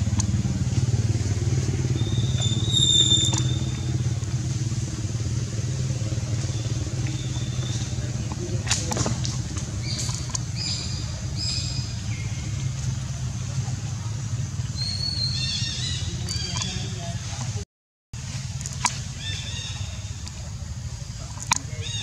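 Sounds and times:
low motor drone: 0:00.0 - 0:17.6
sharp clicks: 0:07.0 - 0:10.8.

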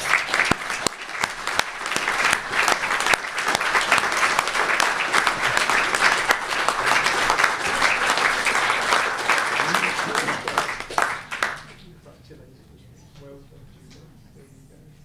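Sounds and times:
audience applauding: 0:00.0 - 0:11.9.

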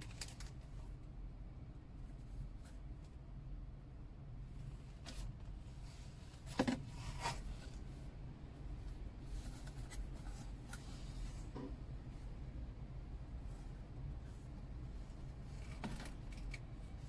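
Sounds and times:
sharp paper crackle: 0:00.0 - 0:00.7.

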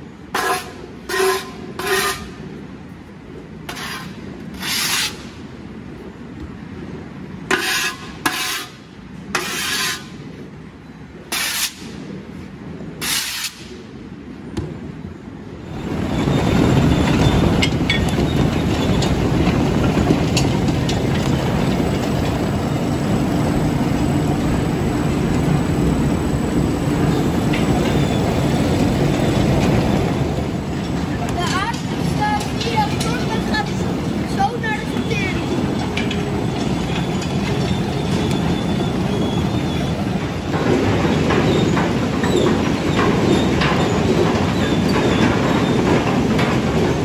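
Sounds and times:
conveyor machinery clattering: 0:14.6 - 0:47.0.

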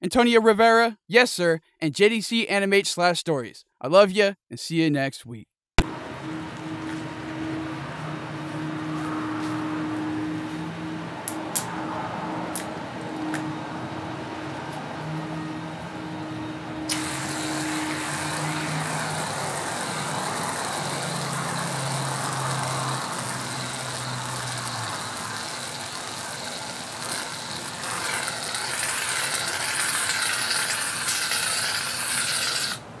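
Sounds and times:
whipped cream can spraying: 0:28.8 - 0:32.8.

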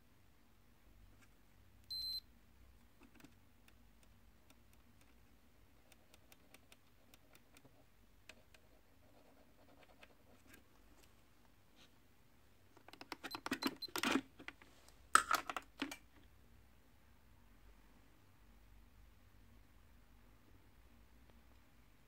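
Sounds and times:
short high multimeter beep: 0:01.9 - 0:02.2.

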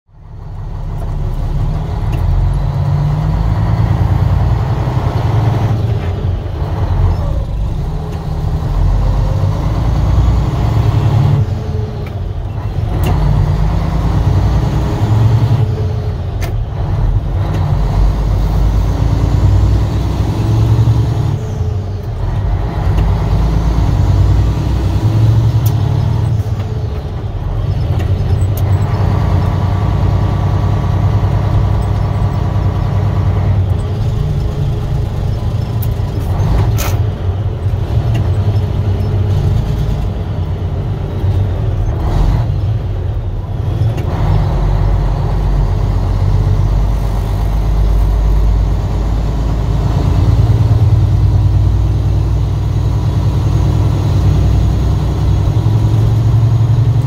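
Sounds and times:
truck diesel engine running: 0:00.1 - 0:57.0.

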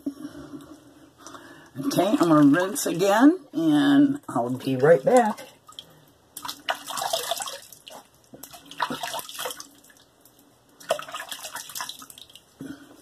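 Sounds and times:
hands splashing water at sink: 0:05.1 - 0:12.4.

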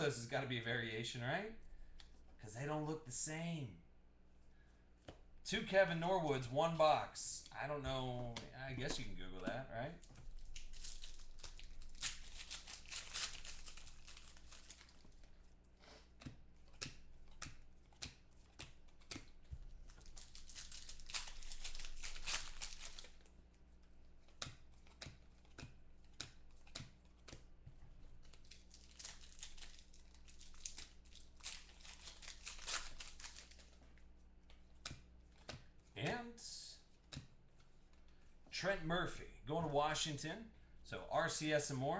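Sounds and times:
foil wrappers crinkling and tearing: 0:08.8 - 0:15.4, 0:19.8 - 0:23.3, 0:28.2 - 0:33.8.

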